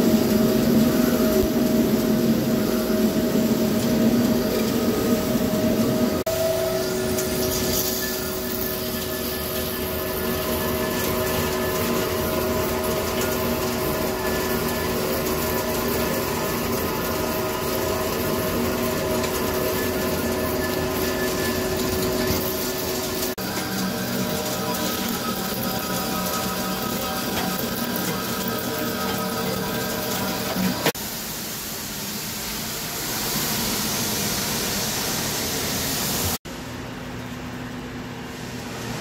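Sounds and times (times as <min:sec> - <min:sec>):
lathe machine hum: 0:00.0 - 0:31.0
swirling metal chips: 0:05.8 - 0:31.0.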